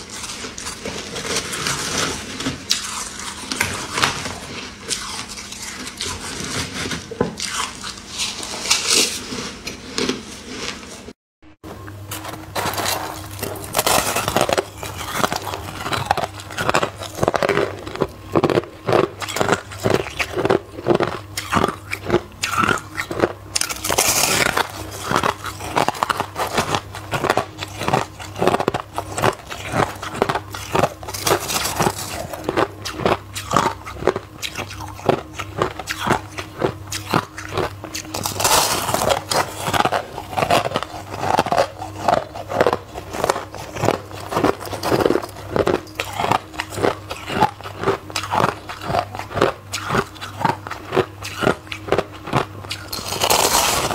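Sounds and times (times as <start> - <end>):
low steady hum: 0.0 - 53.9
person crunching ice: 12.1 - 53.9.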